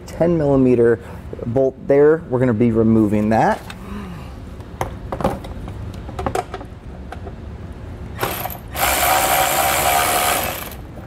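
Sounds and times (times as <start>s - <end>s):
cordless electric ratchet buzzing: 8.2s - 10.9s.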